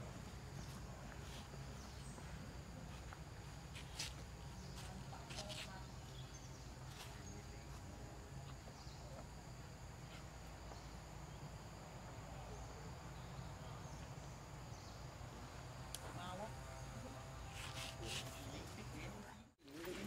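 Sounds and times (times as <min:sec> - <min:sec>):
high insect drone: 0:00.0 - 0:20.0.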